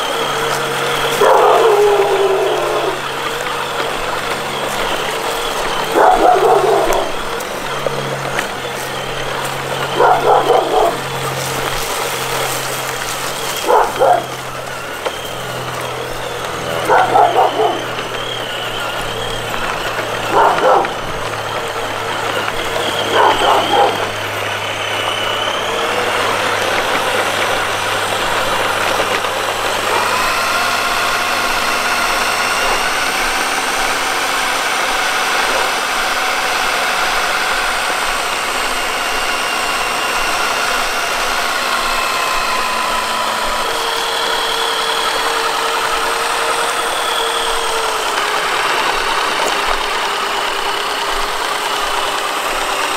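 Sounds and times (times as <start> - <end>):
electric motor whine: 0.0 - 52.9
dog barking: 1.0 - 3.1, 5.7 - 7.3, 9.9 - 11.3, 13.5 - 14.5, 16.6 - 18.1, 19.8 - 21.4, 22.9 - 24.3, 29.8 - 30.3, 32.4 - 33.0, 34.4 - 35.8.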